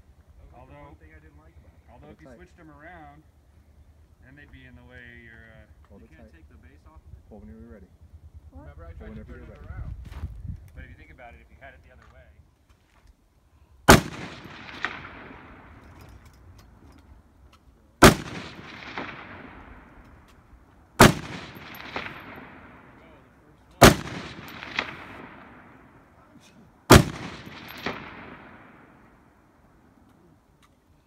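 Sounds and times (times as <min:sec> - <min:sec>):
rifle shots with rolling echo: 0:13.9 - 0:16.9, 0:18.0 - 0:30.0.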